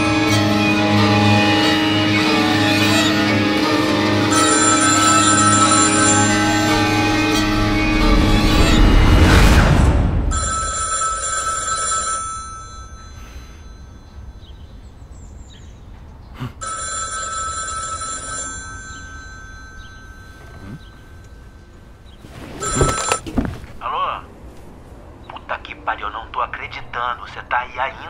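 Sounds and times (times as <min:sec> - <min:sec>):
telephone ringing: 0:04.0 - 0:07.5, 0:10.3 - 0:14.2, 0:16.6 - 0:21.8, 0:22.6 - 0:23.6.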